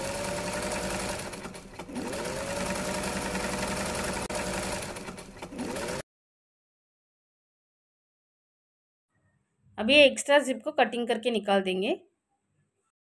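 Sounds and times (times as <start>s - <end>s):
electric sewing machine running: 0.0s - 6.0s.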